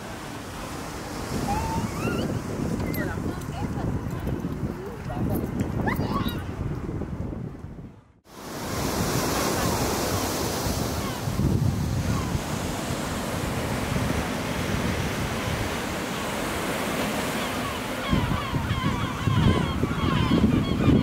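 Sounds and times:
wind buffeting microphone: 0.0 - 21.0
waves breaking over rocks: 8.3 - 18.1.

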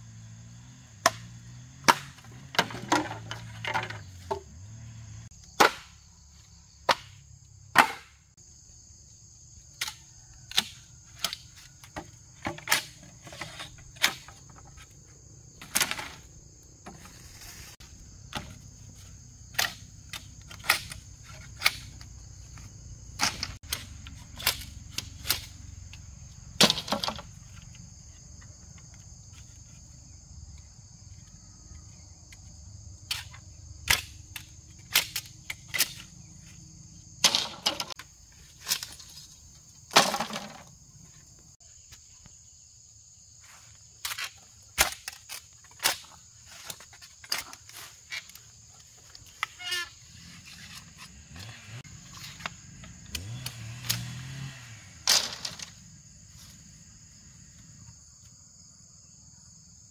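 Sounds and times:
insects droning: 0.0 - 59.9
machete chopping bamboo: 0.9 - 4.4, 5.4 - 6.1, 6.8 - 8.3, 9.7 - 14.4, 19.4 - 25.7, 33.0 - 36.1, 44.0 - 47.8, 51.5 - 54.5.

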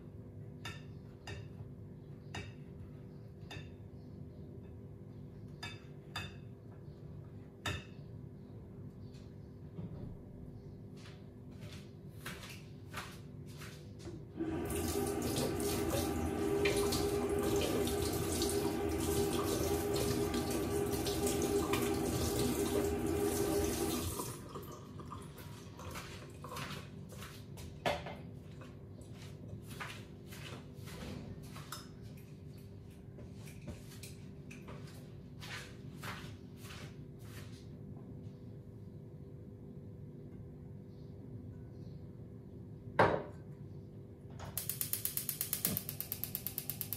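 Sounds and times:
tap water running into sink: 14.4 - 26.4.

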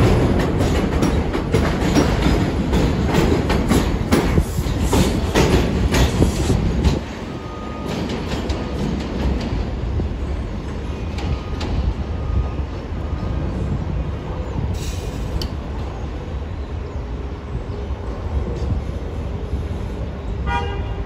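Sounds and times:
train wheels clattering on track: 0.0 - 12.4.

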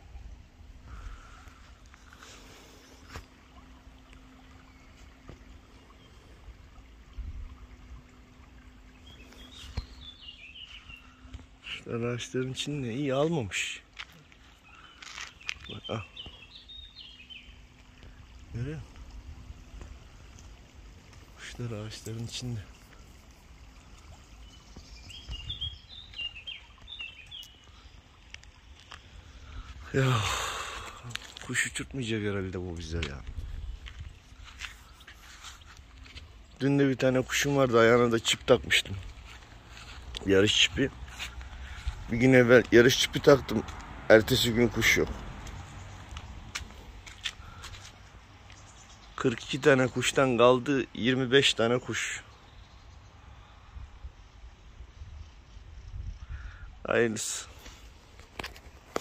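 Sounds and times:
low outdoor rumble: 0.0 - 26.4, 27.7 - 49.5
bird singing falling notes: 8.8 - 13.2, 23.6 - 28.1
small bird chirping: 23.8 - 28.0.

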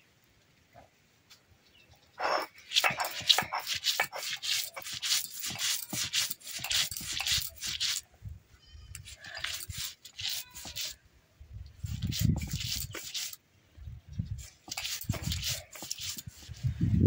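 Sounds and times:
stone roller grinding on stone: 2.2 - 8.0, 9.0 - 11.0, 11.9 - 13.4, 14.4 - 16.7.

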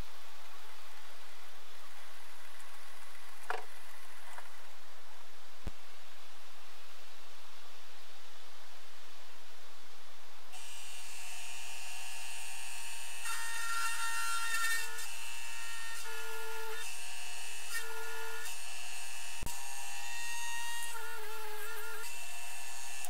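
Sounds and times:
power drill motor whine: 10.6 - 23.0.

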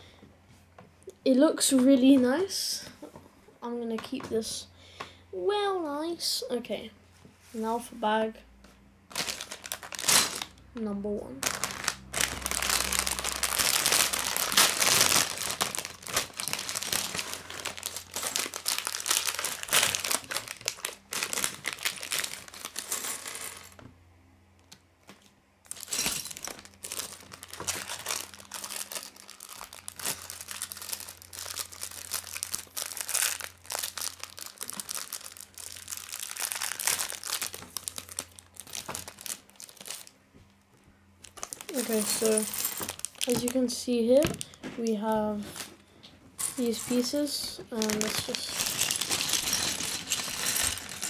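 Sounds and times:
plastic bag crinkling: 9.1 - 10.6, 11.4 - 23.8, 25.6 - 40.2, 41.2 - 45.7, 46.4 - 51.0
plastic bricks clattering on wood: 47.8 - 51.0.

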